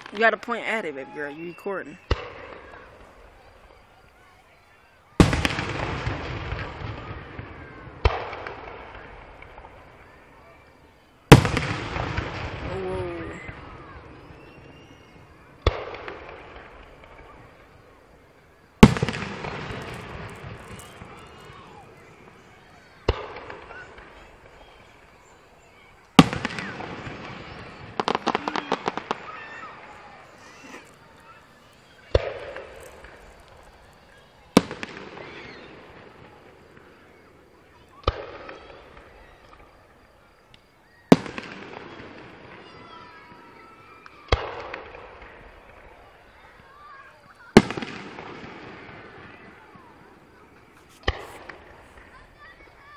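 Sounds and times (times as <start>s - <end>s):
firework crackles: 0.0s - 52.9s
firework bang with rumbling tail: 5.2s - 10.1s, 11.3s - 17.7s
firework shells bursting: 8.0s - 37.1s, 47.6s - 52.7s.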